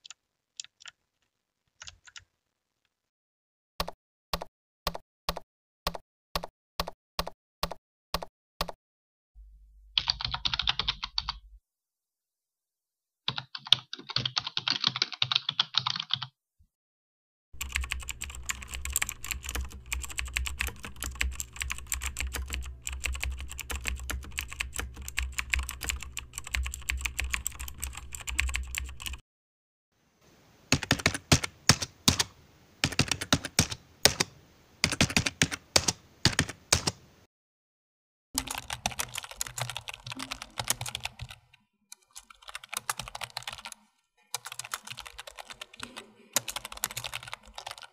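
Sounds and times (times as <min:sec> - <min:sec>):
computer keyboard typing: 0:00.0 - 0:01.0, 0:01.8 - 0:02.3, 0:10.0 - 0:11.4, 0:13.3 - 0:16.3, 0:17.6 - 0:29.2, 0:30.7 - 0:37.0, 0:38.4 - 0:47.9.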